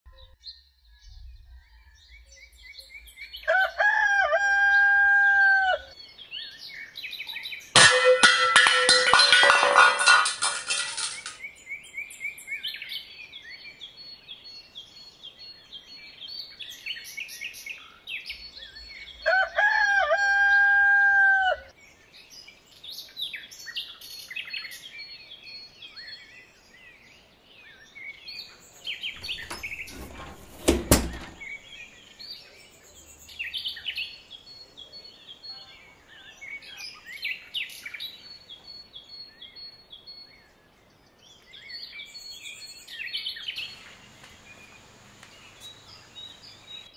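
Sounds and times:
rooster crowing: 3.5s - 5.9s, 19.3s - 21.7s
small birds chirping: 31.4s - 46.9s.

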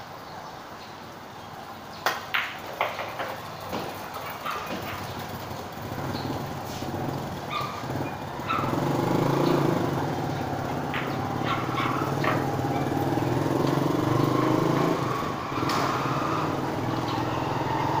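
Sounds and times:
small engine running: 4.2s - 18.0s.

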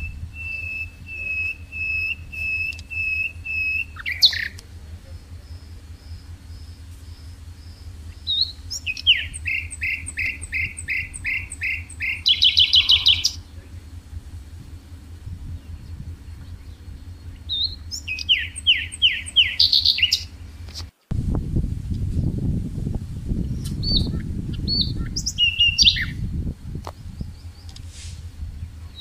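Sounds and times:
songbird singing: 0.0s - 29.0s
steady low hum: 0.0s - 29.0s.

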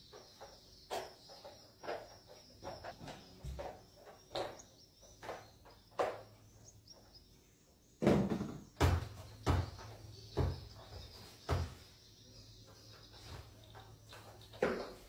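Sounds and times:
mop knocking on tiled floor: 0.1s - 6.4s.

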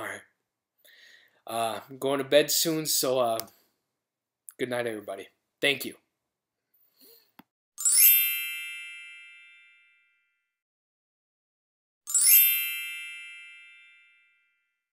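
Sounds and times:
magical bell-like chime: 7.8s - 10.3s, 12.1s - 14.7s.

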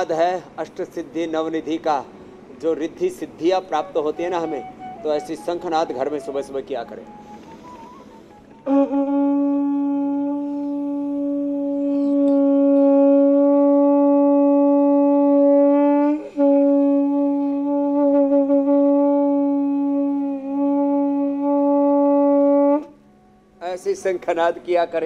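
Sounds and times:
conch shell blast: 7.1s - 23.0s.

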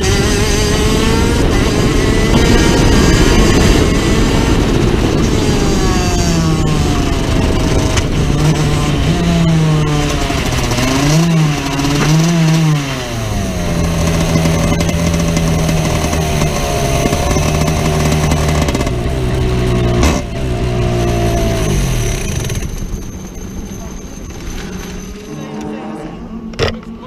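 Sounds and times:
kart engine revving: 0.0s - 27.0s.

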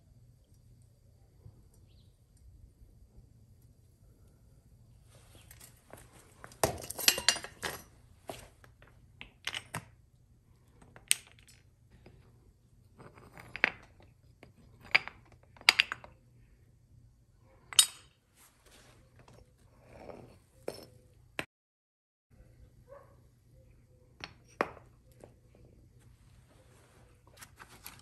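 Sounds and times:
metal ingots clinking on concrete: 6.4s - 7.9s.

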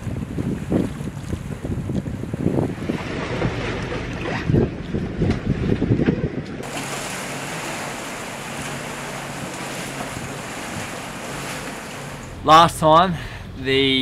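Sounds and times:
wind buffeting microphone: 0.0s - 12.4s
rush of wind and water: 0.0s - 12.8s.

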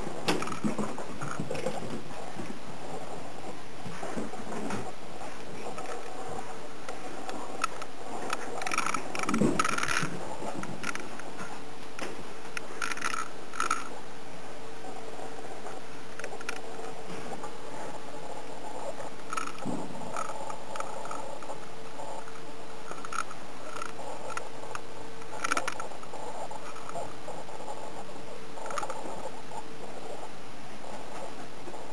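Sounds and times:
faint steady hum: 0.0s - 31.9s
claw clicks: 19.1s - 27.8s.

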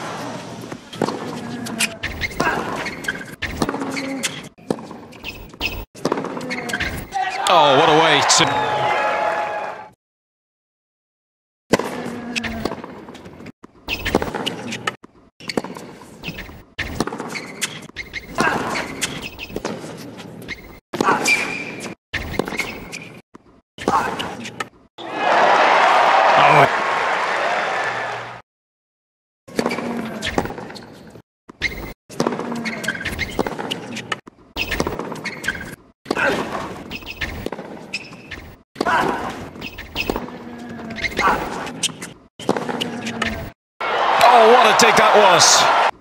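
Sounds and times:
sneakers squeaking on court: 0.4s - 7.4s, 11.9s - 23.2s, 29.5s - 38.6s, 39.2s - 43.5s
crowd noise: 7.3s - 9.8s, 25.0s - 28.4s, 43.8s - 45.9s
crowd murmuring: 44.1s - 45.9s.

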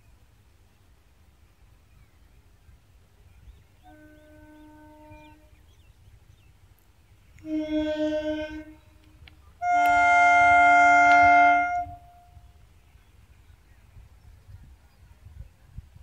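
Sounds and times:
train horn blasts: 3.8s - 5.6s, 7.4s - 12.5s.

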